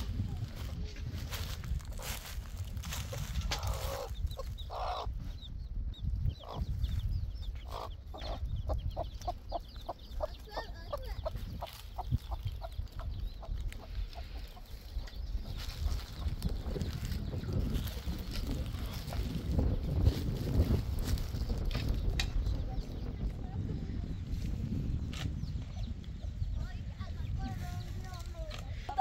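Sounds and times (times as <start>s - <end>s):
hen clucking: 0.0s - 19.8s.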